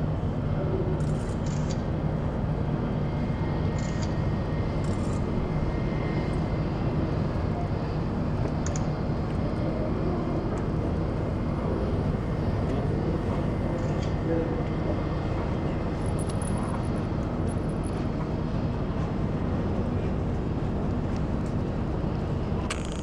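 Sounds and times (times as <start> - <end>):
faint engine whine: 0.0 - 23.0
jet engines rumbling: 1.9 - 22.8.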